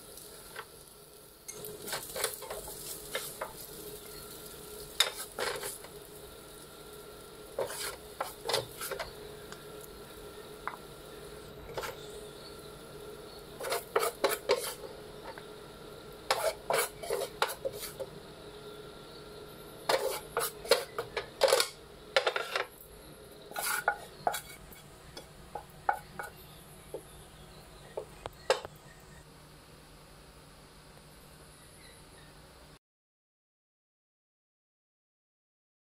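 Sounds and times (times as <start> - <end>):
spatula scraping frying pan: 1.5 - 6.0, 7.4 - 9.2, 11.7 - 12.5, 13.3 - 15.4, 16.2 - 18.1, 19.8 - 22.7, 23.3 - 27.2.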